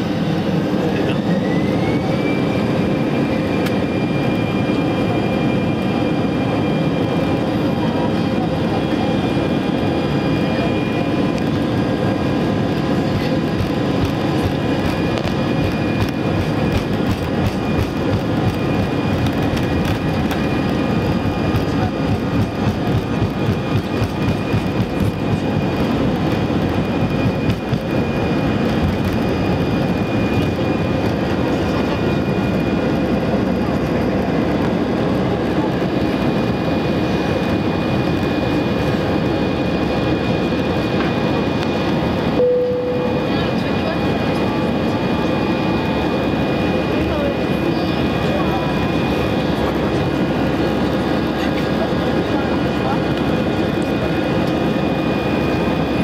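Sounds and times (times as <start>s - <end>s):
jet engines roaring: 0.0s - 56.0s
faint high whine: 42.3s - 43.8s.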